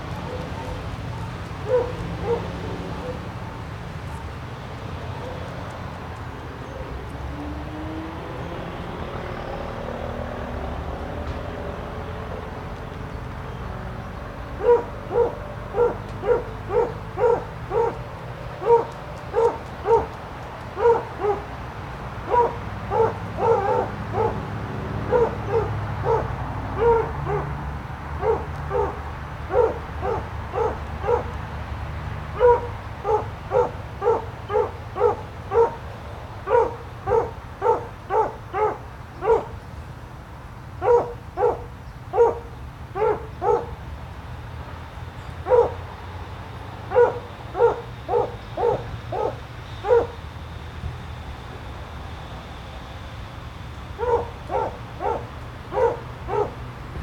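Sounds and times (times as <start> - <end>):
dog barking: 0.2 - 3.3, 14.6 - 20.2, 20.8 - 21.5, 22.2 - 31.4, 32.3 - 39.6, 40.8 - 43.8, 45.4 - 45.8, 46.8 - 50.2, 54.0 - 56.6.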